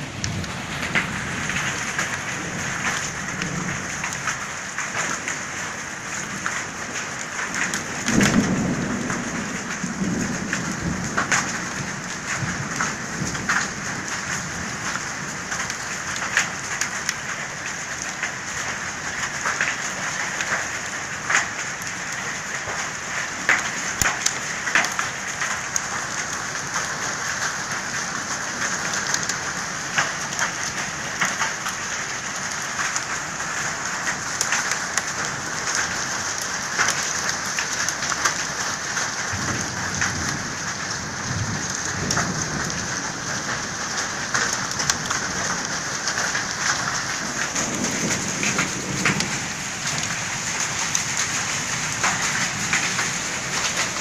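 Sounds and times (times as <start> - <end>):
thunder rumbling: 0.0 - 4.4, 7.6 - 14.6, 39.0 - 54.0
heavy rain falling: 0.0 - 54.0
rain drops ticking on surfaces: 0.0 - 54.0.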